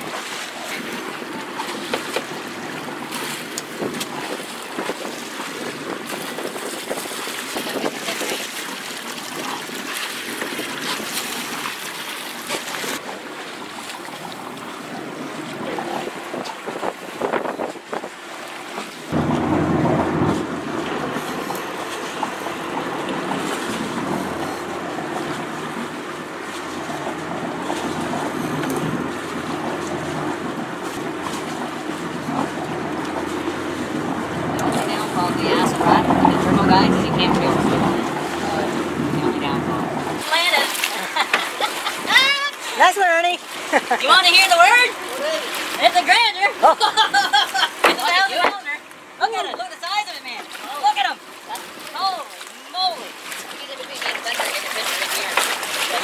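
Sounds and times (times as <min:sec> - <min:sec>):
wind buffeting microphone: 0:00.0 - 0:11.7, 0:12.8 - 0:40.3
water washing against boat hull: 0:00.0 - 0:56.0
steady low hum: 0:19.1 - 0:40.2.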